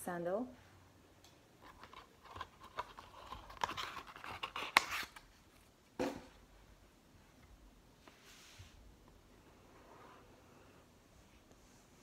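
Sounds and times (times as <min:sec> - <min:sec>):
packing paper rustling: 0:01.6 - 0:05.6.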